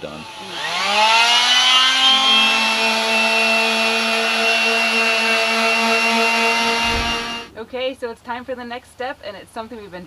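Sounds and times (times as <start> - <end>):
electric palm sander whining: 0.0 - 7.5.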